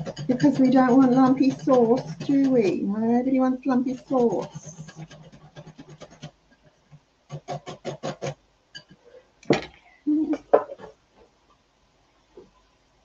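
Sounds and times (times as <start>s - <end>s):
whisk clicking against glass bowl: 0.0s - 6.3s.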